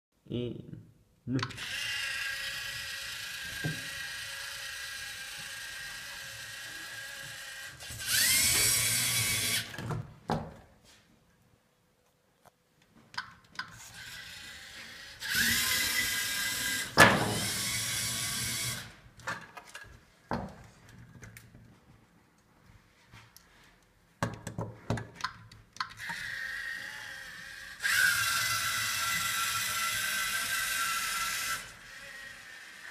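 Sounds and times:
electric motors whining: 1.6 - 10.0, 13.8 - 19.0, 26.0 - 32.9.

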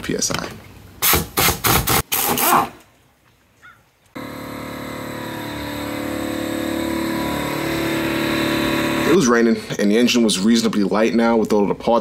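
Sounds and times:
air compressor motor running: 4.2 - 9.8.

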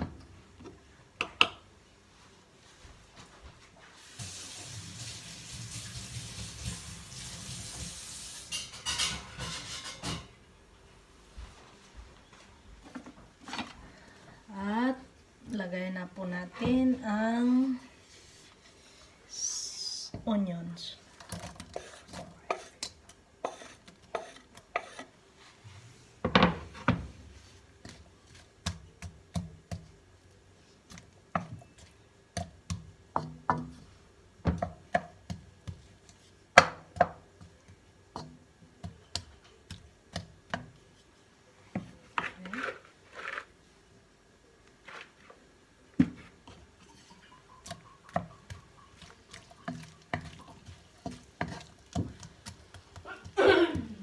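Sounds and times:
onion sizzling in oil: 3.9 - 8.8, 23.4 - 25.1, 47.7 - 53.7
wooden spatula scraping a wok: 7.2 - 10.0, 17.9 - 19.2, 21.2 - 26.0, 40.8 - 43.7, 46.0 - 47.4, 48.9 - 53.8.

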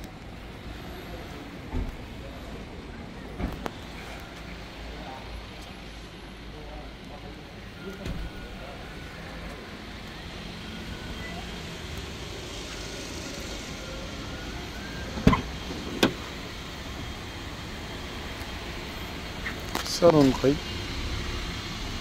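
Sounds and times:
low street hum: 0.0 - 22.0
car door thudding shut: 15.1 - 16.3.

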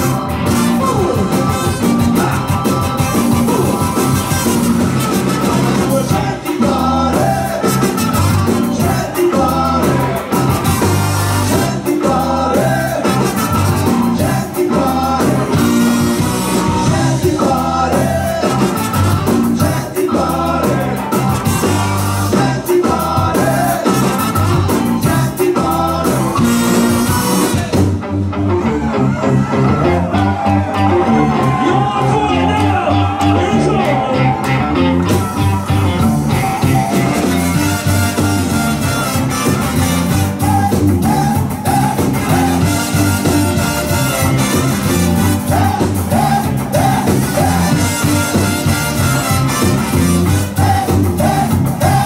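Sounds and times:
trumpet: 0.0 - 6.4, 7.2 - 9.2, 9.8 - 12.0, 12.8 - 14.4, 15.5 - 17.1, 18.4 - 19.8, 20.8 - 22.6, 23.5 - 25.2, 26.3 - 27.8, 36.4 - 40.9, 41.8 - 45.8, 46.7 - 51.1
saxophone: 0.0 - 12.0, 12.6 - 14.7, 15.3 - 20.1, 20.8 - 27.8, 33.8 - 52.0
ska band playing: 0.0 - 52.0.

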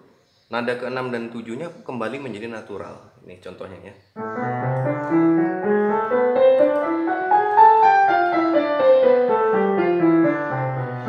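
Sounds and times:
piano playing a scale: 4.2 - 11.0.

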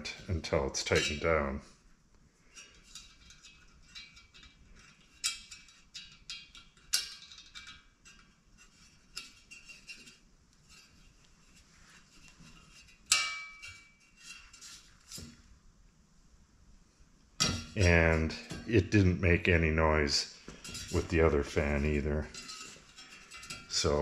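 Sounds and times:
metal fan blade clicking and clinking: 0.0 - 1.5, 2.5 - 11.4, 12.3 - 15.4, 17.4 - 19.1, 20.6 - 24.0.

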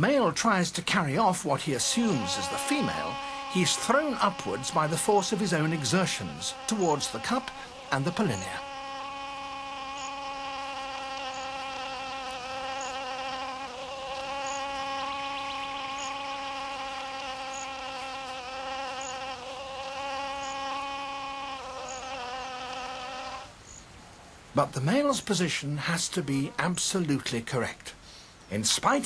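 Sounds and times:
wasp wings buzzing: 1.2 - 23.6.

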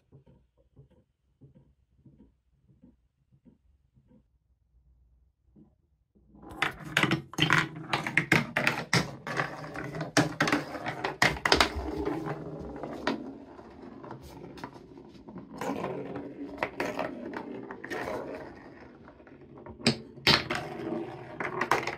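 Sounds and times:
wooden ball rolling on track: 6.3 - 21.9.

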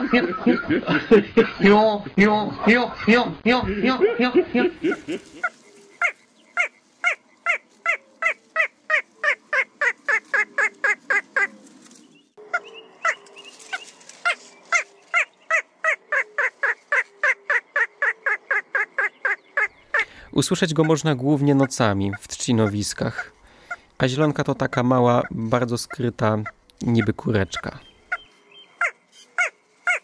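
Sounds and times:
bird calling laugh-like notes: 0.0 - 11.5, 15.2 - 23.8.

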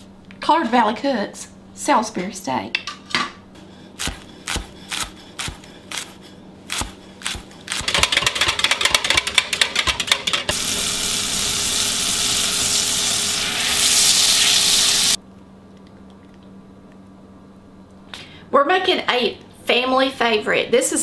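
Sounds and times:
knife chopping on wooden board: 4.0 - 8.5
whisk clicking against cup: 7.8 - 10.5
butter sizzling in skillet: 10.5 - 15.2.

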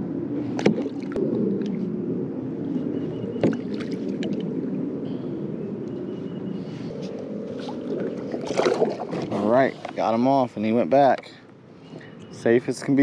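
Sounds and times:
water splashing against kayak: 7.5 - 10.0.

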